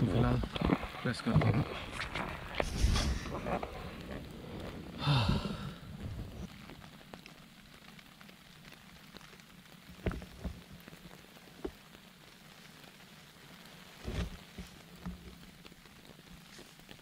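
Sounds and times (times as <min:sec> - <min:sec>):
rain pattering on a tent: 0:00.0 - 0:17.0.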